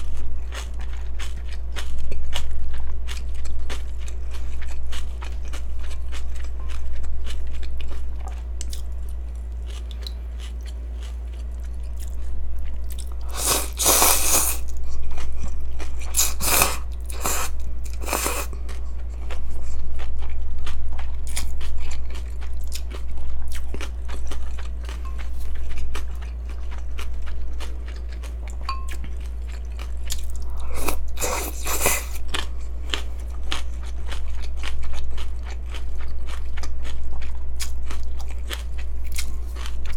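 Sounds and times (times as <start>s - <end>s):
chewing and crunching: 0.0s - 39.9s
steady low hum: 0.0s - 39.9s
noodle slurps: 13.3s - 14.6s, 16.2s - 18.5s.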